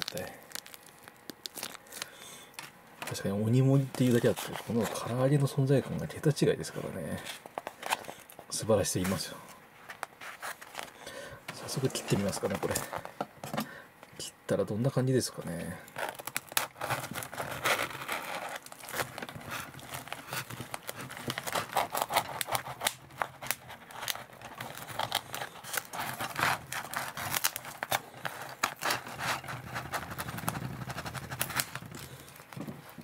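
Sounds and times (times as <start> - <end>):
knife crunching through fried chicken: 0.0 - 2.6, 16.1 - 32.3.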